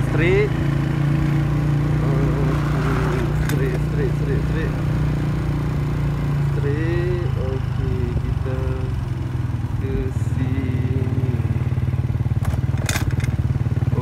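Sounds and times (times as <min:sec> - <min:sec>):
small motorcycle engine running: 0:00.0 - 0:14.0.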